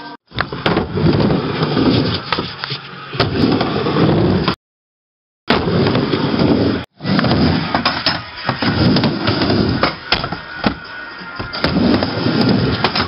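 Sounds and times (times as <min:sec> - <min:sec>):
skateboard wheels rumbling: 0:00.4 - 0:02.6, 0:05.6 - 0:10.7, 0:11.4 - 0:13.0.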